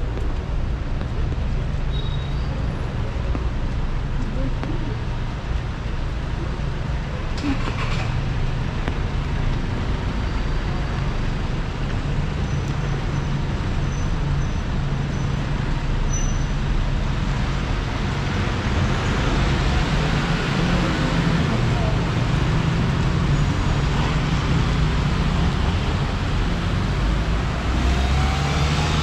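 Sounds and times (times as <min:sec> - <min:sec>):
city street traffic: 0:00.0 - 0:29.0.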